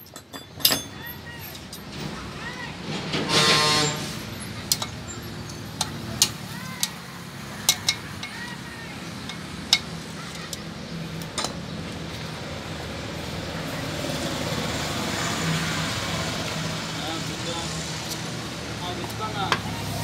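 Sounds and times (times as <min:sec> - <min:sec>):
background vehicle noise: 0:00.0 - 0:20.0
sharp metallic taps: 0:04.7 - 0:08.6, 0:09.2 - 0:11.6.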